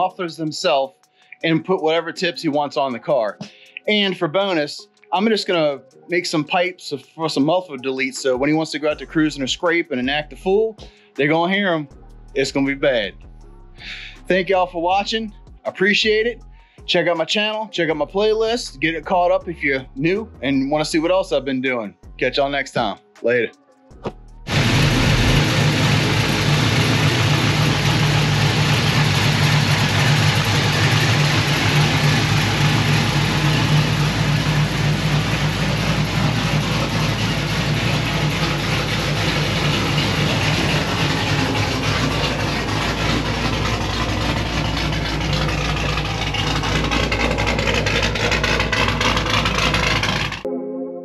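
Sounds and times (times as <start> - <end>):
car engine idling loudly: 24.5 - 50.5.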